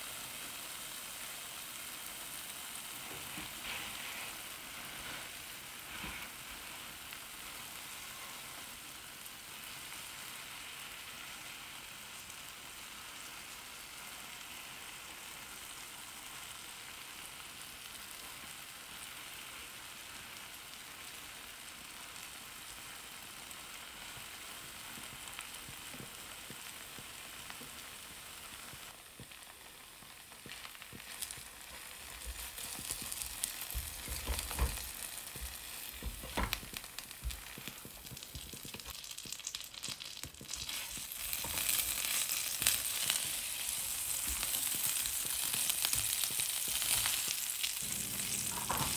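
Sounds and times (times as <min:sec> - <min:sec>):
egg and cheese sizzling in pan: 0:00.0 - 0:48.9
spatula scraping and knocking pan: 0:31.0 - 0:38.9, 0:47.9 - 0:48.9.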